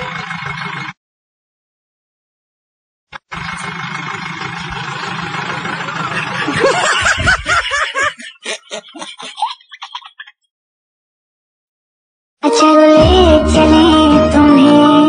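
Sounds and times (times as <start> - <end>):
bus engine rumbling: 0.0 - 1.0, 3.2 - 10.3
person laughing: 4.7 - 10.5.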